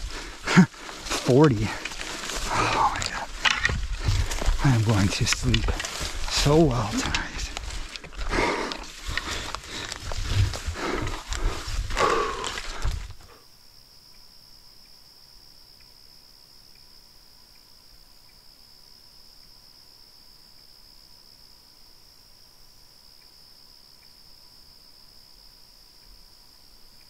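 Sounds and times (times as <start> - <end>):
gear rustling and knocking: 0.0 - 13.2
man breathing heavily: 0.0 - 13.4
crickets droning: 0.0 - 27.0.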